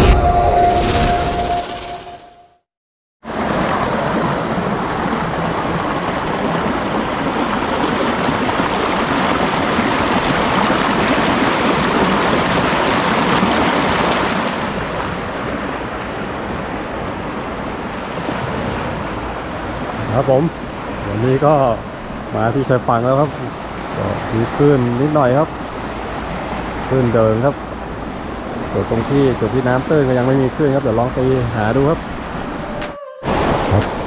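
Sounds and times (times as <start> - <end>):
seawater washing over rocks: 3.2 - 15.8
small waves breaking on shore: 3.2 - 32.6.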